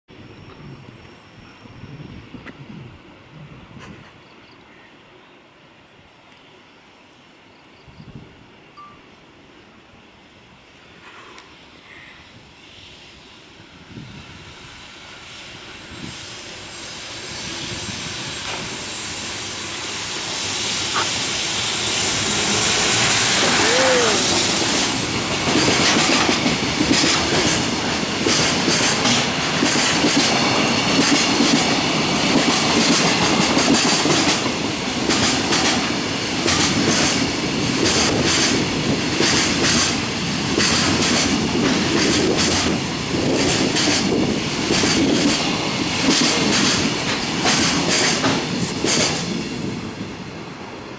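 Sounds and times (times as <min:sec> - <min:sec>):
freight train rumbling past: 0:11.5 - 0:50.9
wheels clacking over rail joints: 0:23.6 - 0:49.4.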